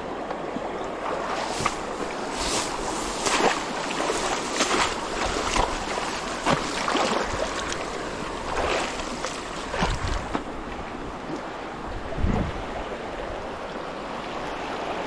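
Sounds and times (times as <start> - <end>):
stream water rushing: 0.0 - 15.0
feet splashing through grass: 1.0 - 10.5.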